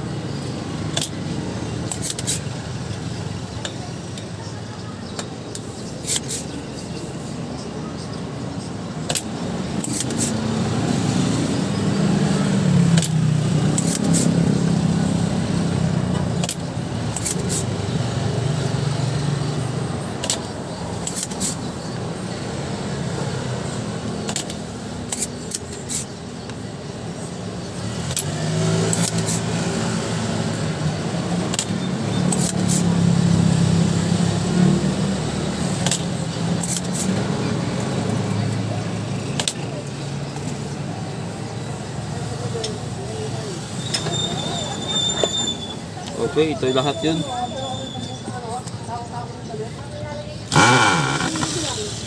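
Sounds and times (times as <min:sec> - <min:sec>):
desoldering pump clicks: 0:50.5 - 0:52.0.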